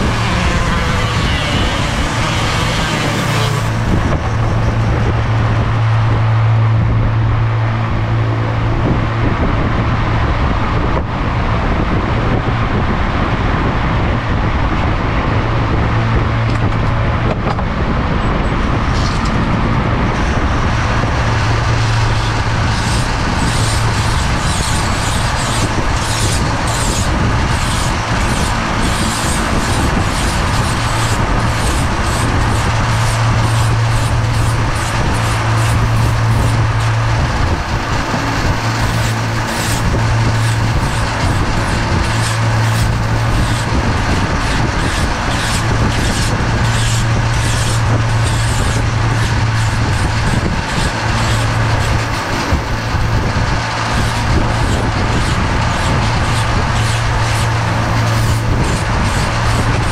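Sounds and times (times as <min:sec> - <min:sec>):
sanding drum grinding cork: 0:00.0 - 0:04.9, 0:20.7 - 0:59.9
rotary tool humming: 0:00.0 - 0:09.6, 0:15.6 - 0:59.9.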